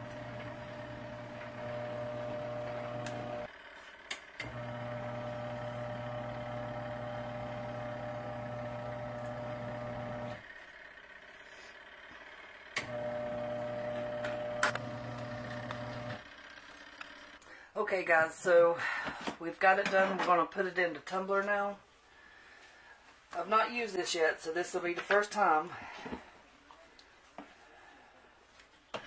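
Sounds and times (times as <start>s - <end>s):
washing machine motor hum: 0.0s - 11.3s, 12.0s - 16.6s.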